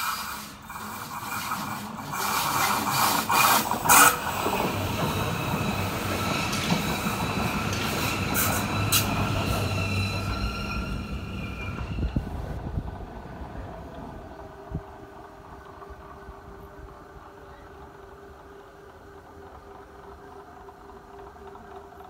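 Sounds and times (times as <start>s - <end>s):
wheels clicking on rails: 0.0s - 22.0s
train wheels squealing: 1.2s - 12.6s.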